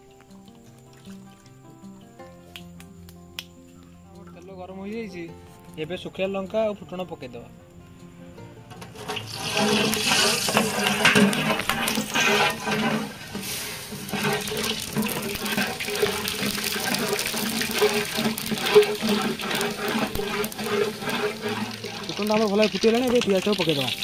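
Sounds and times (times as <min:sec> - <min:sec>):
popping in oil: 0:00.0 - 0:03.9, 0:08.7 - 0:24.0
spices sizzling in hot oil: 0:08.8 - 0:24.0.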